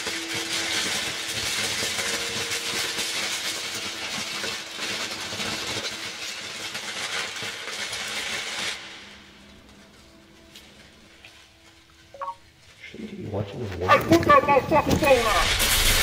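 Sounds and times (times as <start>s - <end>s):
loud rushing hiss: 15.0s - 16.0s.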